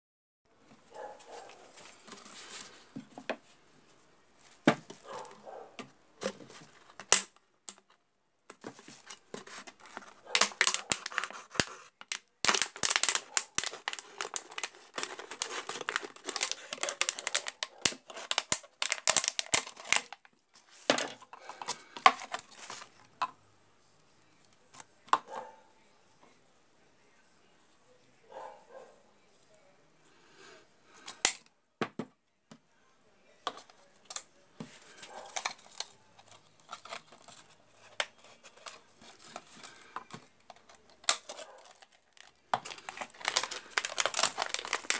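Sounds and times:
plastic bottle crinkling: 6.2 - 23.2, 33.5 - 44.9.

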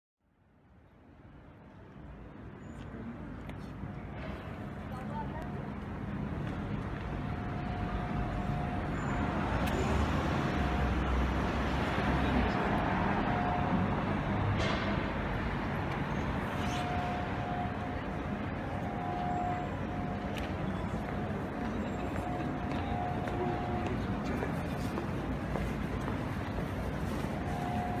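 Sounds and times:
road traffic: 0.3 - 28.0
people's voices: 4.7 - 5.9.

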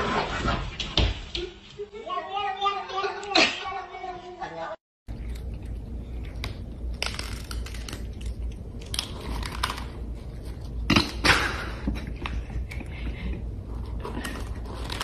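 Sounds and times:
cat crunching dry kibble: 5.1 - 10.9.

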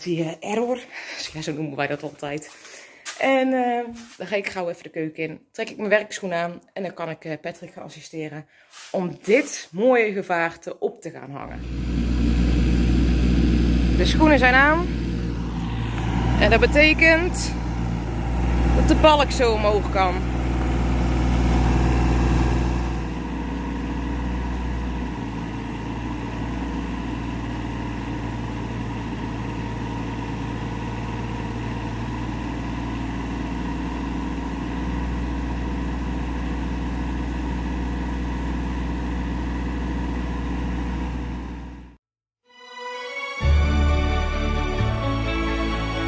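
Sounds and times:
excavator diesel engine under load: 11.4 - 42.0.

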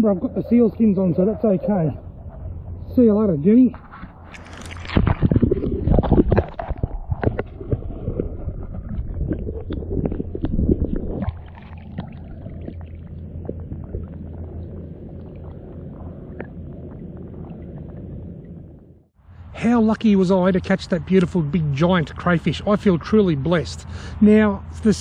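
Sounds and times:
water sloshing and splashing: 3.8 - 18.8.

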